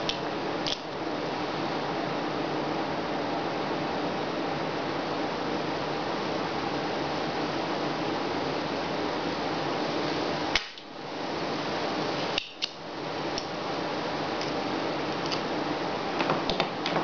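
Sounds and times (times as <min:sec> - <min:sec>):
desoldering pump snapping: 0:00.0 - 0:00.9, 0:12.4 - 0:12.8
background hiss: 0:00.0 - 0:17.0.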